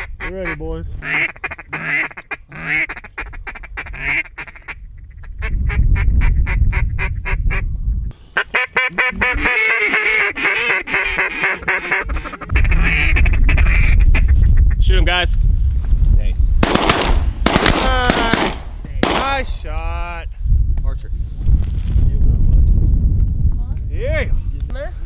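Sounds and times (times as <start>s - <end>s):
duck calls quacking: 0.0s - 7.6s, 8.3s - 14.8s
wind rumbling on microphone: 0.0s - 25.0s.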